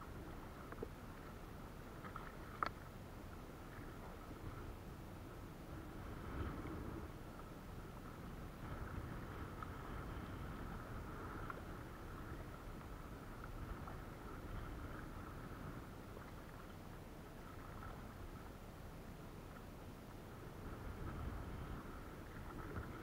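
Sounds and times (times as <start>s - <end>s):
faint steady high hum: 0.0s - 23.0s
water around a kayak: 0.0s - 23.0s
wind: 0.0s - 23.0s
small ticks: 2.0s - 2.9s.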